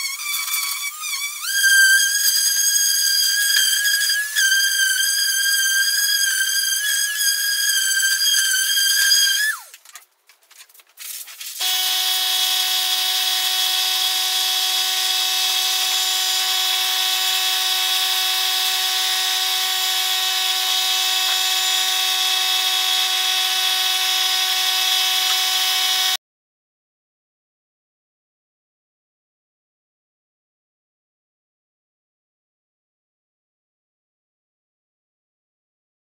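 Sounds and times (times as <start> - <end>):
power tool whining: 0.0 - 9.8, 11.6 - 26.2.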